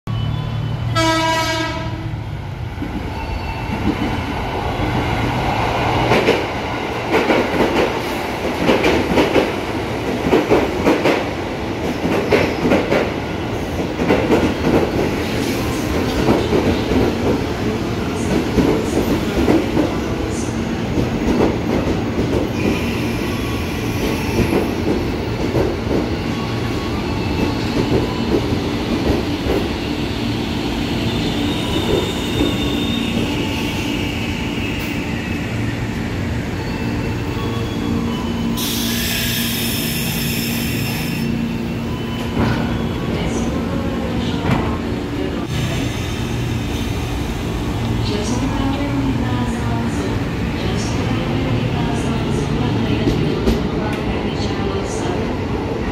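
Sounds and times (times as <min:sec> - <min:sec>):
low train hum: 0:00.1 - 0:55.9
train horn blast: 0:00.9 - 0:02.1.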